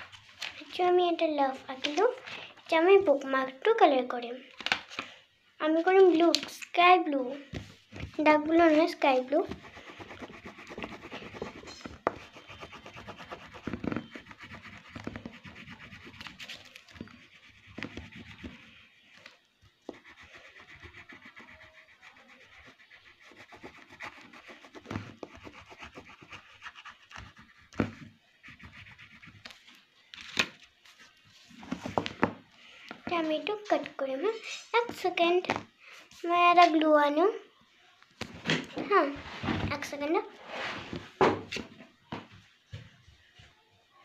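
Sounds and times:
scratching strokes on paper: 0:07.8 - 0:29.8.

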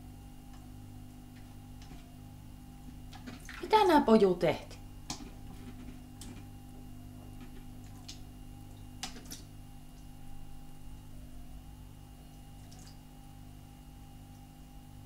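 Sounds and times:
water splashes: 0:03.2 - 0:04.0.

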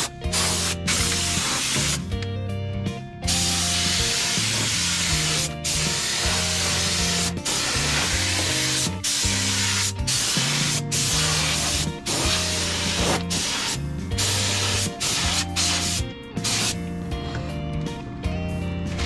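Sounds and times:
background music: 0:00.0 - 0:19.0
paint spray hiss: 0:00.3 - 0:02.0, 0:03.3 - 0:16.8.

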